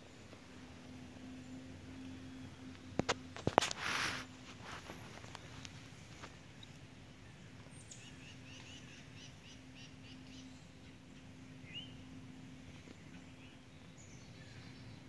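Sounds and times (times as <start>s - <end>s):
faint low hum: 0.0s - 15.0s
bird chirping: 6.6s - 12.1s.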